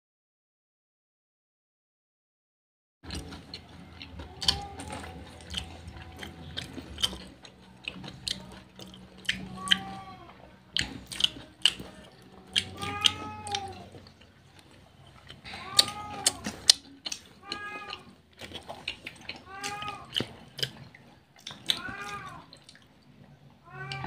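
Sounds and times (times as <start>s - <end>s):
crunching fried chicken: 3.0s - 24.0s
animal calling: 3.1s - 18.2s.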